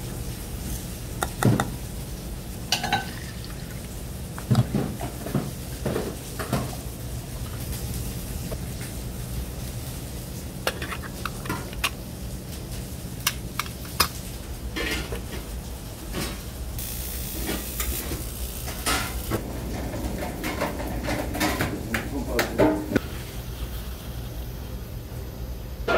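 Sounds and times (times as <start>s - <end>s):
food sizzling: 0.0s - 22.0s, 23.0s - 25.8s
steady low hum: 0.0s - 25.9s
metal utensils clinking on pans: 2.7s - 3.2s.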